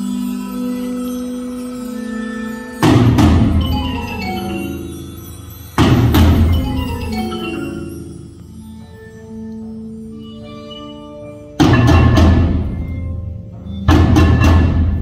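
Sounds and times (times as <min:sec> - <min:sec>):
loud accented percussion strikes: 0:00.0 - 0:08.5, 0:11.6 - 0:15.0
ringing mallet keyboard tones: 0:00.0 - 0:15.0.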